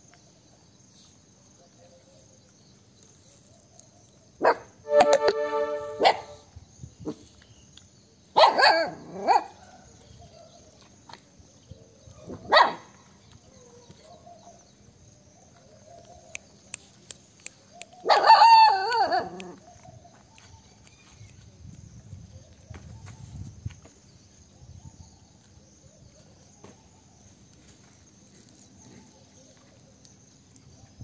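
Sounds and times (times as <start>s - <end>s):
dogs barking and yelping: 8.4s - 9.6s, 18.0s - 19.9s.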